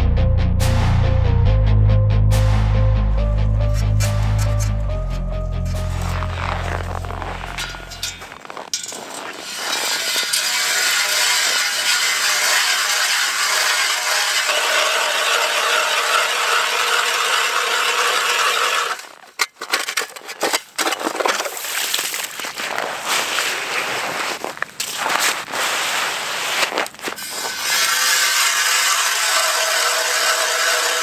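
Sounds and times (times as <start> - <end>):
auger scraping and knocking: 3.6 - 31.0
ice auger grinding through ice: 3.8 - 31.0.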